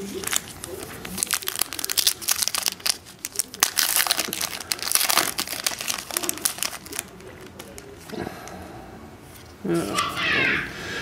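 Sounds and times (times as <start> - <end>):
foil wrappers crinkling: 0.0 - 8.2.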